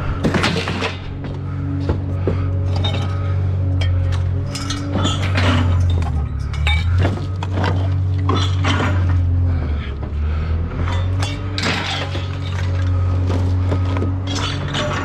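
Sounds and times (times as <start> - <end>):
low hum: 0.0 - 15.0
scrap metal clanking: 2.5 - 9.4, 10.7 - 15.0.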